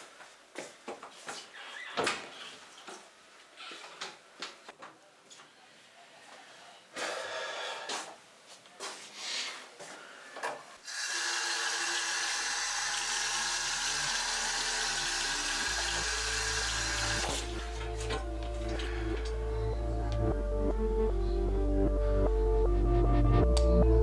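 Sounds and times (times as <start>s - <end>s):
tap running into sink: 15.6s - 18.2s
low synth notes: 17.4s - 24.0s.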